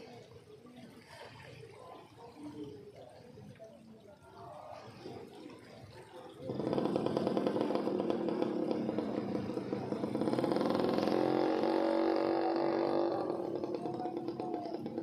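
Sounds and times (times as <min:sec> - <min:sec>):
small engine running: 0:06.5 - 0:15.0.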